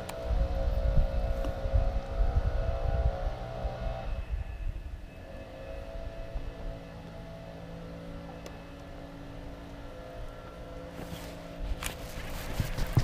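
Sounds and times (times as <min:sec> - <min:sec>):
motor hum: 0:00.0 - 0:13.0
rustling: 0:10.9 - 0:13.0.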